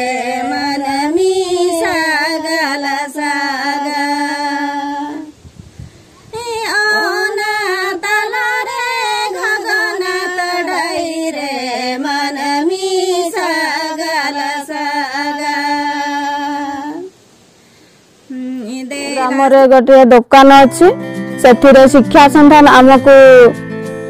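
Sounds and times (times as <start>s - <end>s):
women singing unaccompanied: 0.0s - 5.5s, 6.2s - 17.2s, 18.3s - 20.9s.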